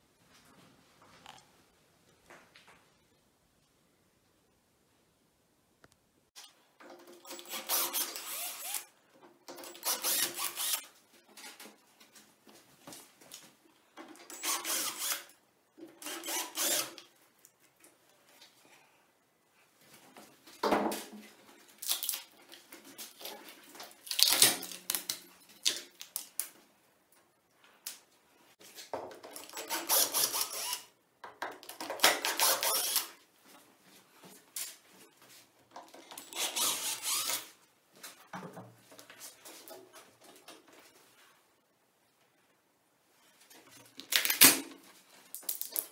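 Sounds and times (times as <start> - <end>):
cordless drill-driver bursts: 7.3 - 8.8, 9.7 - 10.8, 14.4 - 15.3, 16.0 - 17.0, 29.7 - 30.9, 32.3 - 33.1, 36.3 - 37.5.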